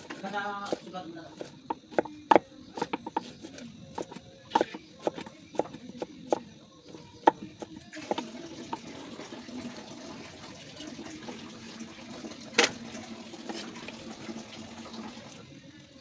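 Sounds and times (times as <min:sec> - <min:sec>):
knife chopping on cutting board: 0:00.0 - 0:08.9
water running: 0:07.6 - 0:15.7.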